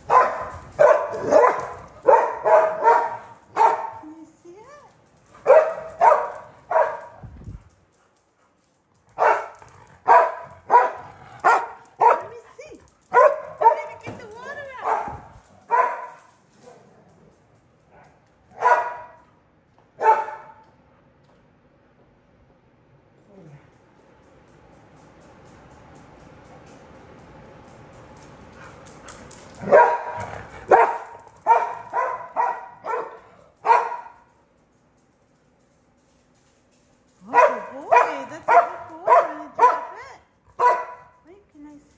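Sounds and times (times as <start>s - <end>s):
dog barking: 0.1s - 4.0s, 5.4s - 7.2s, 9.2s - 12.4s, 13.1s - 14.0s, 14.8s - 16.2s, 18.6s - 19.2s, 20.0s - 20.6s, 29.6s - 34.2s, 37.3s - 40.0s, 40.6s - 41.2s.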